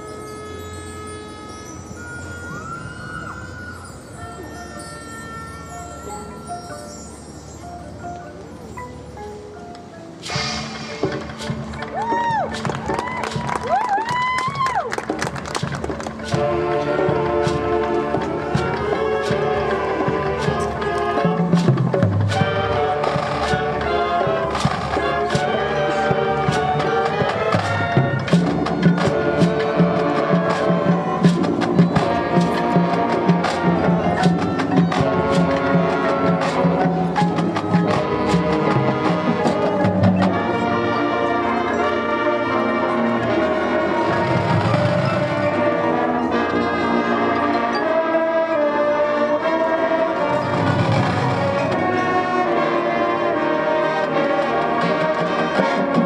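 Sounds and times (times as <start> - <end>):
drum line strikes: 10.2 - 40.6
brass holding chords: 16.2 - 56.0.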